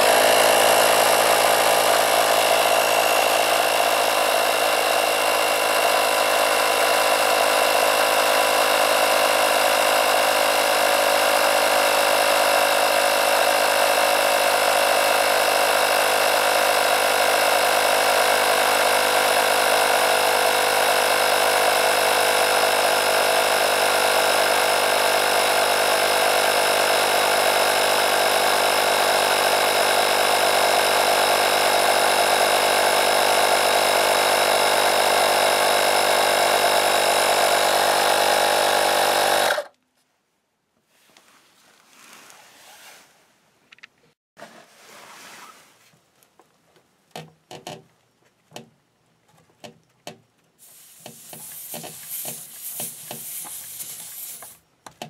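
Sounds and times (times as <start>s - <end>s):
tyre inflator compressor running: 0.0s - 39.7s, 50.6s - 54.6s.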